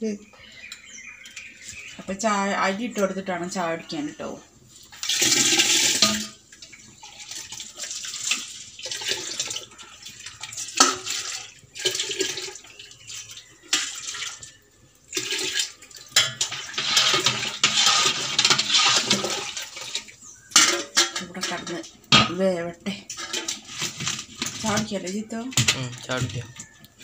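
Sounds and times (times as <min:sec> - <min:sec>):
rice and water pouring into pot: 0:04.9 - 0:20.6
water splashing: 0:04.9 - 0:22.1.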